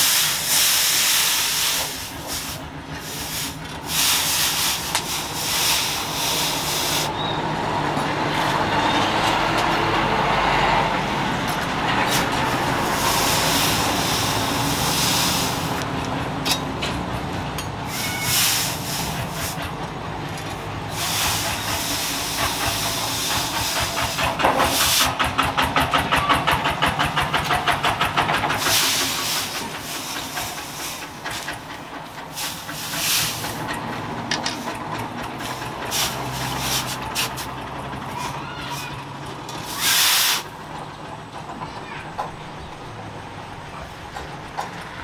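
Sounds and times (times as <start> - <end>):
hot blade hissing in water: 39.6 - 40.5.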